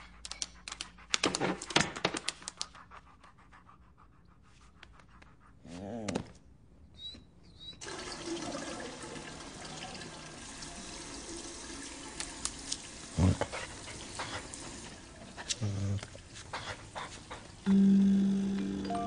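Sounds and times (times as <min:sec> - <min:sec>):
water running into a basin: 0:07.8 - 0:19.0.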